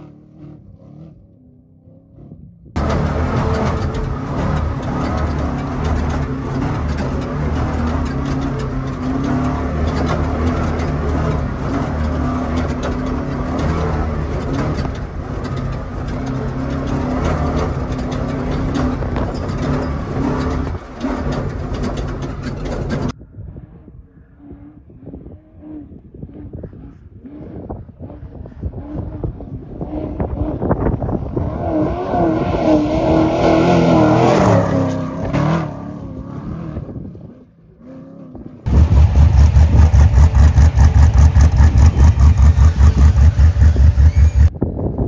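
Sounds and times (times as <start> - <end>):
distant engine: 0.0 - 44.6
wind noise: 2.2 - 35.6, 36.2 - 37.4, 38.6 - 45.0
truck engine under load: 2.4 - 45.0
chassis knocks and rattles: 2.8 - 23.2.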